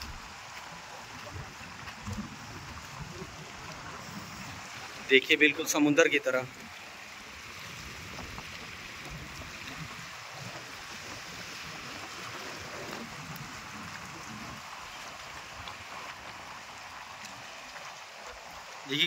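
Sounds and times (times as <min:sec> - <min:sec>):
waves lapping against rocks: 0:00.0 - 0:19.0
wind buffeting microphone: 0:07.2 - 0:15.6.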